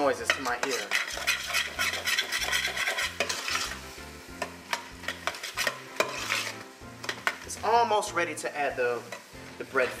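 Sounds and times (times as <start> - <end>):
meat sizzling in a pot: 0.0 - 10.0
metal spoon scraping pot: 0.2 - 3.8, 4.4 - 7.4.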